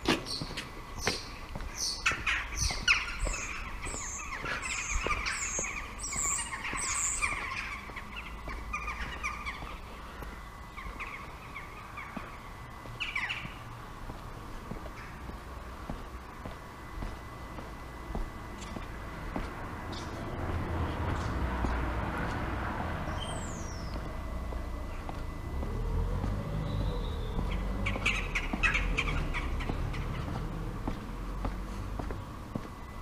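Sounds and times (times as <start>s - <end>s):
footsteps on paving: 0.0s - 11.4s, 12.0s - 33.0s
birds chirping and singing: 0.1s - 13.8s, 19.9s - 20.2s, 23.1s - 24.2s, 25.8s - 32.2s.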